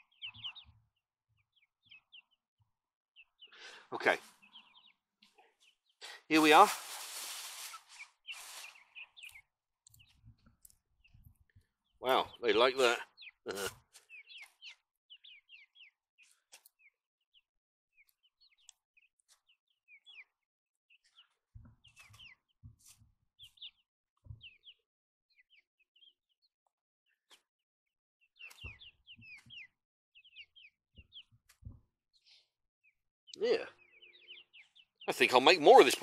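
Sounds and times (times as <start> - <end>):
chicks cheeping: 0.0 - 0.8, 1.4 - 2.4, 3.2 - 26.4, 28.3 - 31.6, 32.2 - 36.0
beaks pecking plastic bag: 6.4 - 9.4.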